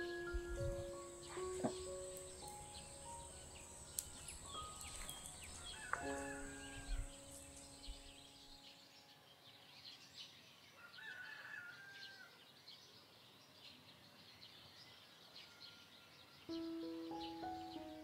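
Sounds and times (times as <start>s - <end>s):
small birds chirping: 0.0s - 18.0s
rooster crowing: 5.4s - 7.2s, 10.8s - 12.4s.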